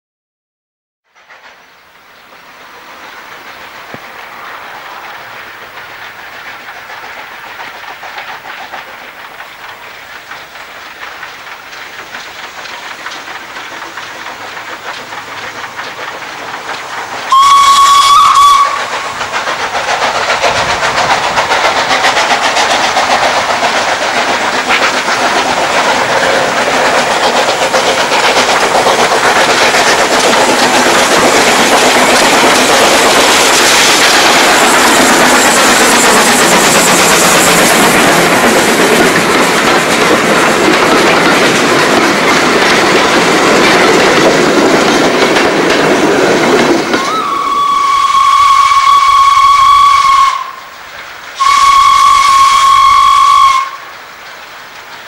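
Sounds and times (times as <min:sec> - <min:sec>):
steam locomotives working: 0:01.1 - 0:55.0
steam whistle blast: 0:17.3 - 0:19.1, 0:47.0 - 0:50.7, 0:51.4 - 0:53.9.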